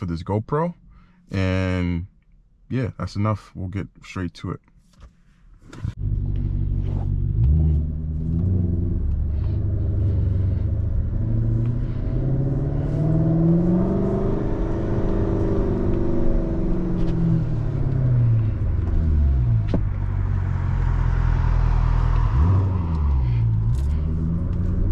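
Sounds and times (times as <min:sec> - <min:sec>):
car engine revving: 0:06.0 - 0:24.9.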